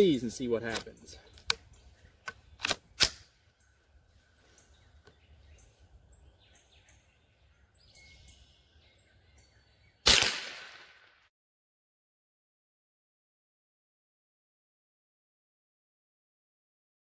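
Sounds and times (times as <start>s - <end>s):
faint bird chirps: 3.5s - 10.1s
rifle shot: 10.0s - 11.3s.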